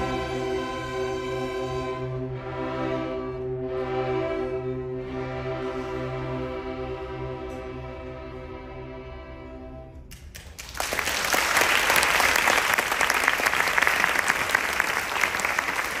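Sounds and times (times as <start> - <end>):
string orchestra chord: 0.0 - 10.0
audience applause: 10.4 - 16.0.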